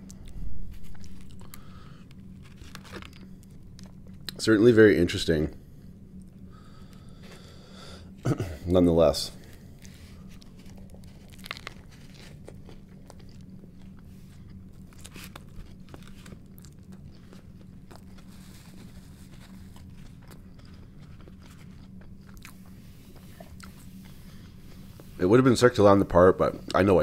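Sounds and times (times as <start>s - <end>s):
man chewing crunchy sandwich: 0.0s - 4.4s, 9.3s - 25.2s
steady low hum: 0.0s - 27.0s.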